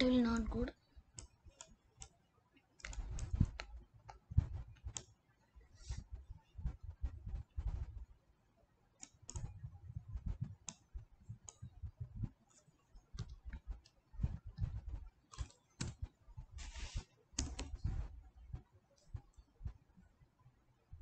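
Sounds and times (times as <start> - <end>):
keyboard and mouse clicks: 1.2 - 2.2, 2.8 - 5.1, 9.0 - 18.1.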